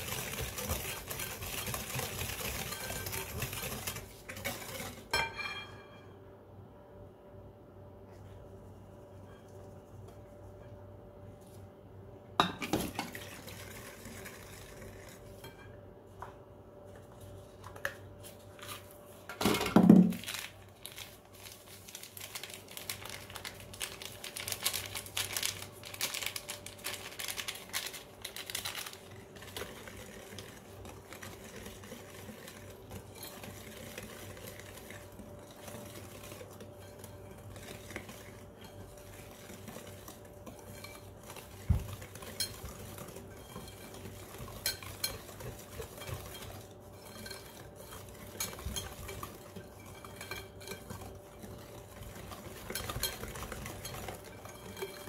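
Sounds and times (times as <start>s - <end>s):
whisk scraping glass bowl: 0.0s - 6.0s, 13.0s - 15.8s, 22.2s - 55.0s.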